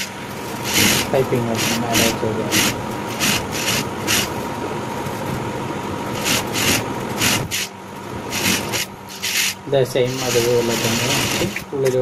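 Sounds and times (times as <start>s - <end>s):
motor humming: 0.0s - 12.0s
sewing machine stitching: 0.6s - 4.3s, 6.2s - 7.7s, 8.3s - 11.7s.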